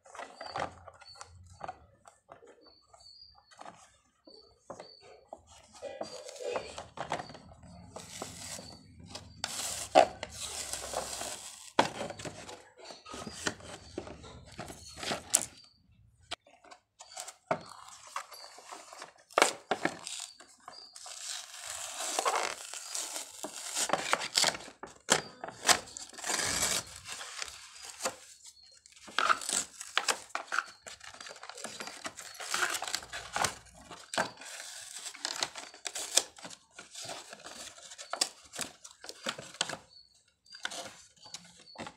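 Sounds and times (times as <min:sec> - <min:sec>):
plastic packaging crinkling: 0:08.0 - 0:12.4, 0:17.6 - 0:28.3, 0:29.0 - 0:39.7.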